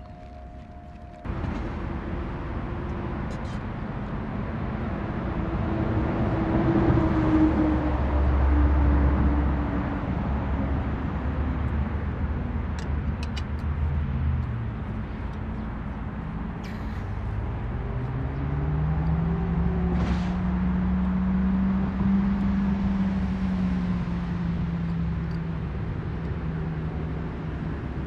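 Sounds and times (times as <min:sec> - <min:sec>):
vehicle passing by: 0:13.7 - 0:28.0.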